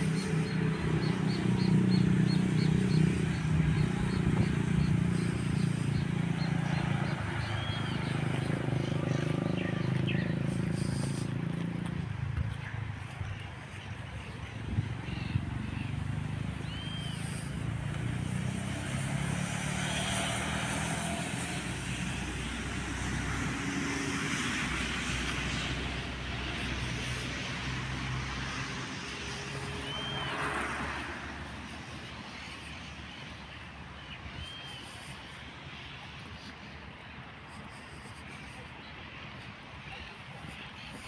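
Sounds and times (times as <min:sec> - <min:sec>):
distant bus engine running: 0:00.0 - 0:31.4
bird chirps: 0:16.6 - 0:17.5.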